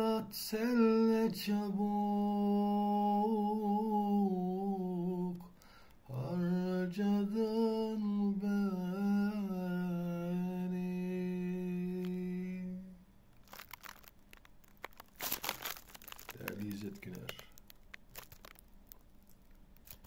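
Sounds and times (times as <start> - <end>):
man singing unaccompanied: 0.0 - 5.5, 6.1 - 13.0
crackling rustles: 11.9 - 12.3, 13.3 - 20.0.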